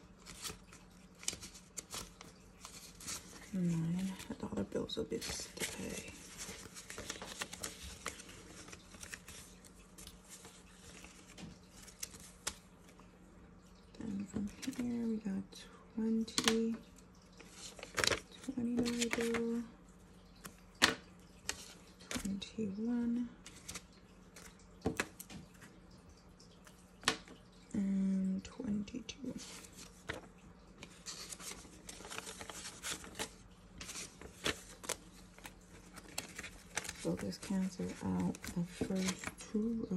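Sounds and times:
paper banknotes rustling: 5.2s - 12.6s, 17.4s - 19.6s, 29.4s - 39.8s.

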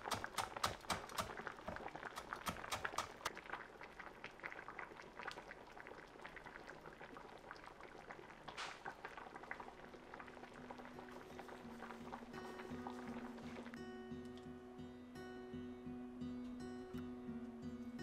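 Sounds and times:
knife chopping on wooden board: 0.0s - 1.4s, 2.2s - 3.2s
soft background music: 9.3s - 18.0s.

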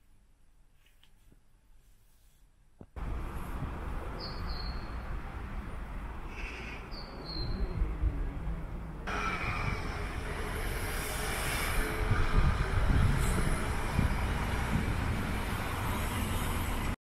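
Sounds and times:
outdoor rushing noise: 9.1s - 17.0s.

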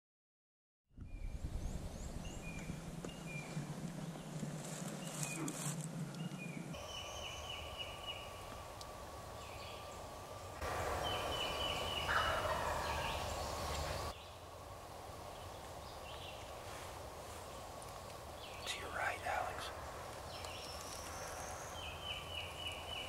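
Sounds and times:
turkey gobbling: 11.9s - 13.4s.

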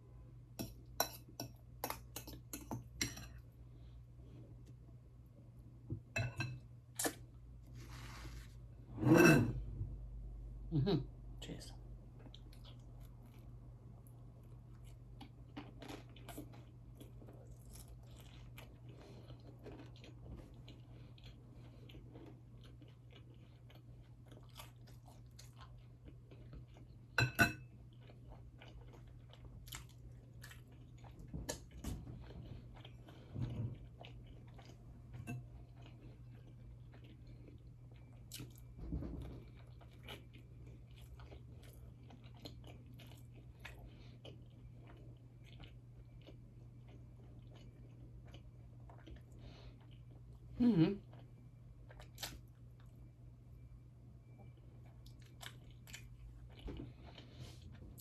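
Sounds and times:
wet chewing with mouth clicks: 27.9s - 50.3s, 51.0s - 53.0s, 54.2s - 58.0s.

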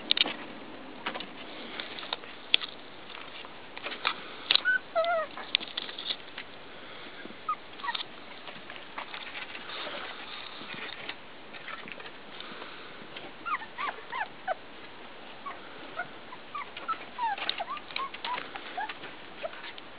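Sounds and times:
puppy whimpering: 4.6s - 5.5s, 7.5s - 8.0s, 13.4s - 14.6s, 15.4s - 19.8s.

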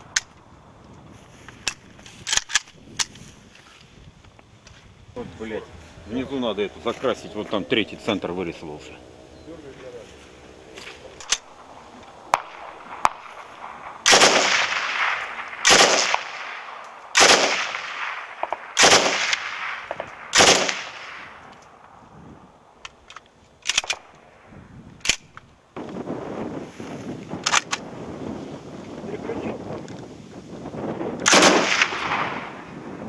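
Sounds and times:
faint sharp cracks: 10.8s - 22.0s
rifle shots with echo: 12.3s - 21.4s, 31.2s - 32.7s.

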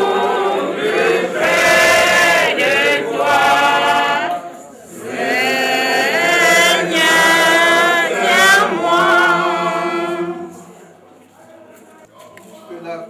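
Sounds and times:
congregation singing a hymn: 0.0s - 10.9s.

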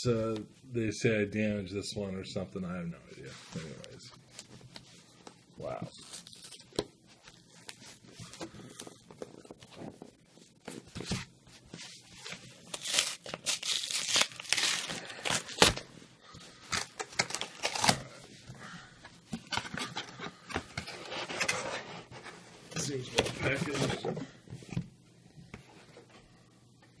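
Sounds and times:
cardboard tearing: 12.6s - 15.8s, 16.8s - 18.0s
packing tape ripping: 12.7s - 15.8s, 16.7s - 18.1s
cardboard rustling and scraping: 19.4s - 24.9s.

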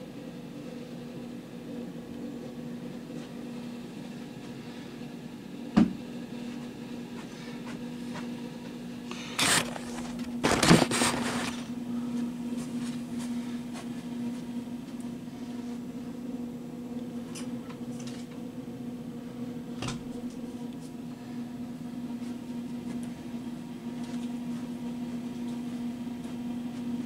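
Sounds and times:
steady low hum: 0.0s - 27.0s
rustling and scraping: 9.1s - 11.7s
handling noises near microphone: 9.2s - 11.7s.

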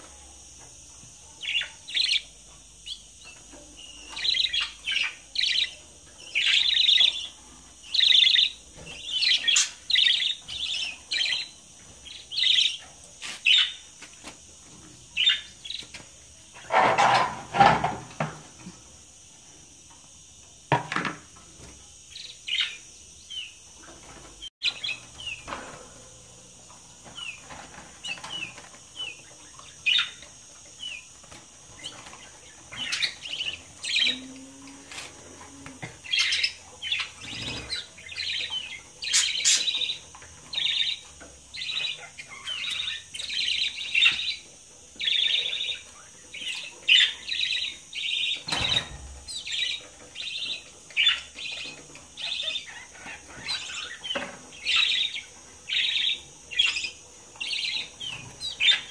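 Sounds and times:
budgerigars chirping: 36.1s - 44.4s, 45.0s - 58.9s.

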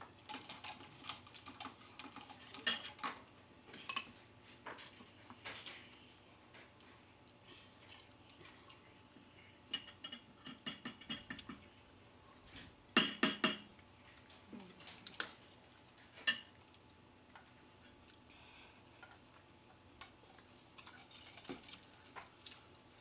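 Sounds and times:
cutlery clinking on dishes: 2.5s - 3.2s, 9.7s - 11.6s, 13.0s - 13.7s, 16.1s - 16.6s.

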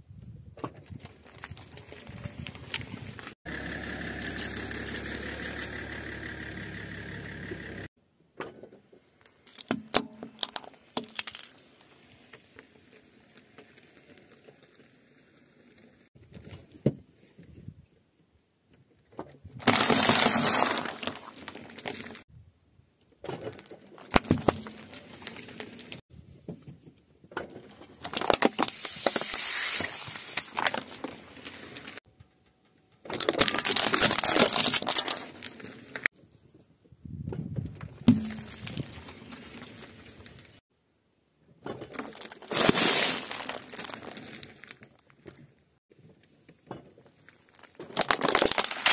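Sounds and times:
styrofoam crackling under tyre: 0.8s - 5.7s, 9.4s - 15.8s, 19.6s - 22.2s, 23.4s - 26.0s, 27.7s - 32.0s, 33.0s - 36.1s, 37.8s - 40.6s, 41.9s - 45.5s, 46.9s - 48.9s
loud crunching: 0.9s - 7.2s, 19.6s - 22.2s, 23.4s - 26.0s, 27.6s - 32.0s, 33.0s - 36.1s, 37.9s - 40.6s, 41.9s - 45.2s, 47.0s - 48.9s
car engine idling: 3.5s - 7.9s
plastic bottle of eggs bursting: 19.6s - 22.2s.

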